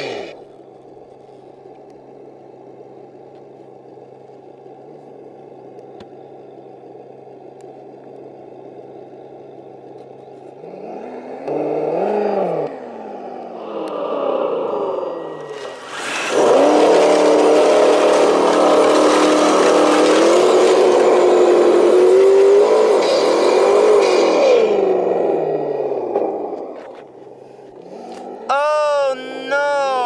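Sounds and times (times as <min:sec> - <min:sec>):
toy truck motor humming and revving: 0:00.0 - 0:00.4, 0:10.6 - 0:27.2
gritty gravel noise: 0:15.3 - 0:24.3.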